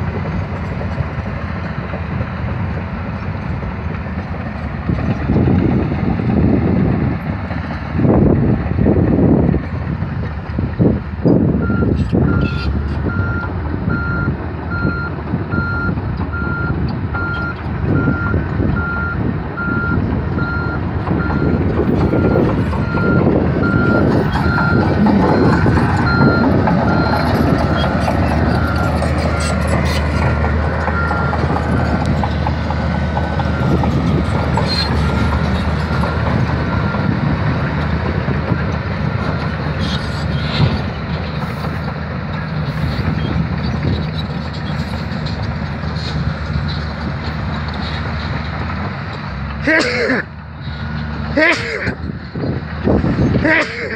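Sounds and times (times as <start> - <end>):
bulldozer diesel engine running: 0.0 - 53.9
reverse alarm beeping: 11.6 - 27.9.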